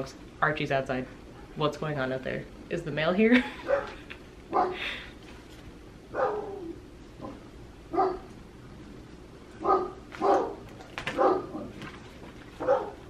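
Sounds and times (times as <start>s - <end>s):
dogs barking: 3.6s - 4.8s, 6.1s - 8.4s, 9.6s - 11.9s, 12.6s - 13.0s.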